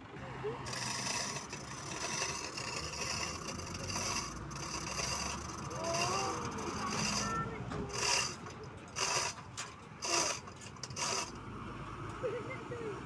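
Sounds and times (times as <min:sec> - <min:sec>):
rasping scraping of rigging: 0:00.6 - 0:11.5.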